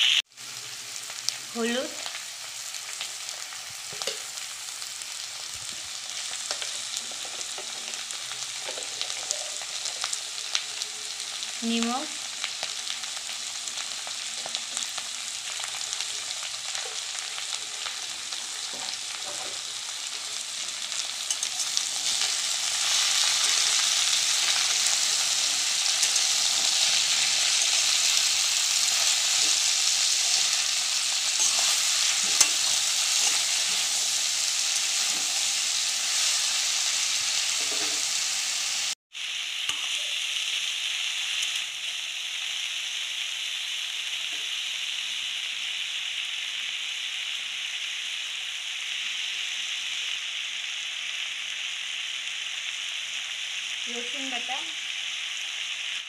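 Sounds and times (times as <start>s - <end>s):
vegetables sizzling in oil: 0.0s - 56.0s
vegetables being stirred: 6.4s - 10.1s, 18.5s - 38.3s.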